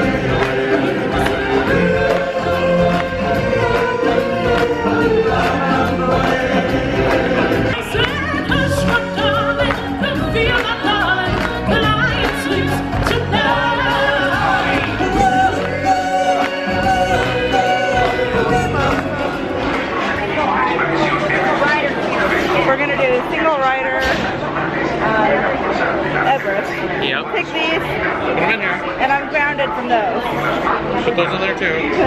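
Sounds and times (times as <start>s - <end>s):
choir singing with accompaniment: 0.0s - 20.8s.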